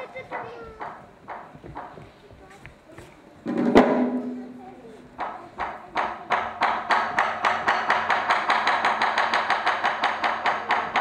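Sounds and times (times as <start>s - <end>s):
taiko drum strokes: 3.4s - 11.0s.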